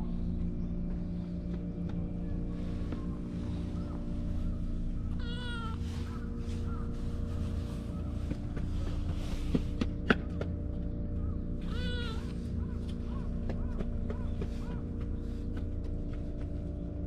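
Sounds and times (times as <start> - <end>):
low hum: 0.0 - 17.0
kitten meowing: 5.1 - 5.9, 11.6 - 12.4.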